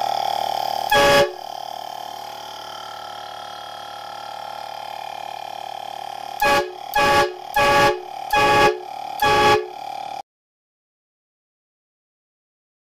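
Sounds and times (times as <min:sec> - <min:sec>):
air horn blasts: 0:00.9 - 0:01.6, 0:06.4 - 0:10.0.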